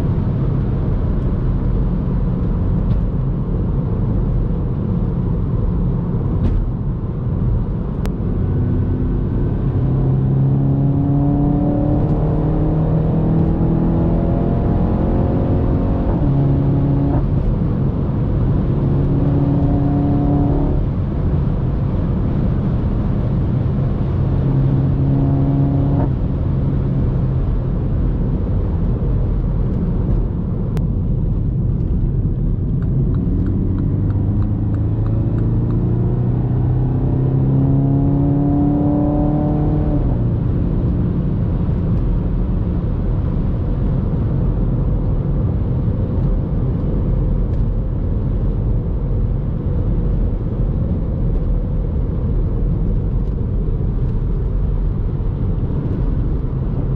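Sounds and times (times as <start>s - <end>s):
car engine accelerating: 0.0s - 56.9s
road and tyre rumble: 0.0s - 56.9s.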